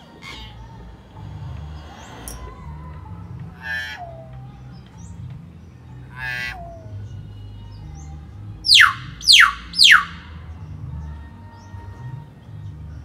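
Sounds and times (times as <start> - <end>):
myna bird call: 3.5 - 5.2, 5.9 - 10.6.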